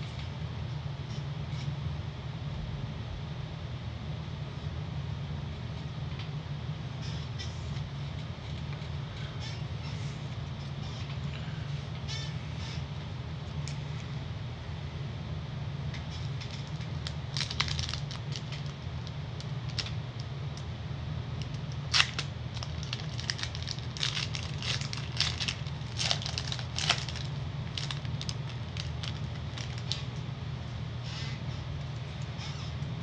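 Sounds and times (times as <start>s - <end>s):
steady low hum: 0.0s - 33.0s
foil wrapper crinkling and tearing: 16.4s - 20.0s, 21.5s - 30.1s.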